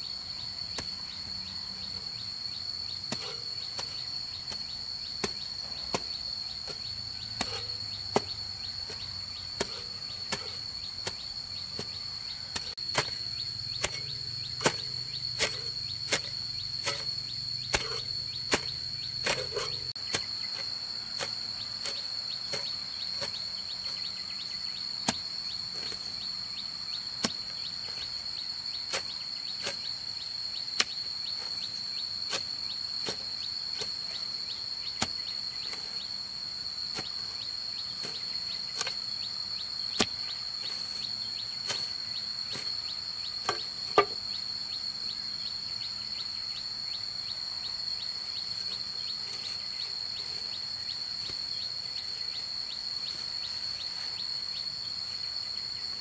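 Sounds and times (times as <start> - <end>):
high insect drone: 0.0 - 56.0
hoe chopping into soil: 3.1 - 24.1, 25.0 - 26.2, 27.2 - 28.2, 30.8 - 34.2, 38.0 - 39.0, 39.9 - 42.8, 43.4 - 44.2.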